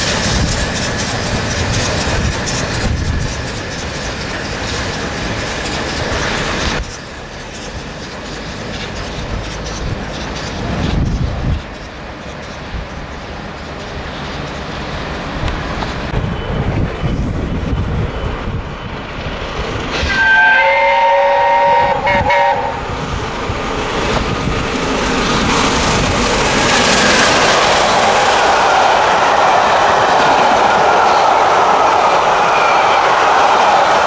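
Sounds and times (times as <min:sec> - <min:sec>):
steam train rumble and rail clatter: 0:00.0 - 0:34.0
steam locomotive whistle: 0:19.9 - 0:23.0, 0:28.2 - 0:34.0.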